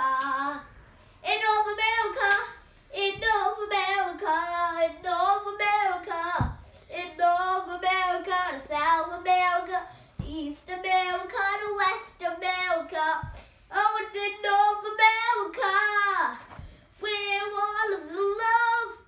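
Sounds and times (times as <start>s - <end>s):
boy singing: 0.0s - 16.4s, 17.0s - 19.0s
soft low thumps: 3.0s - 4.4s, 6.2s - 6.7s, 10.1s - 10.8s.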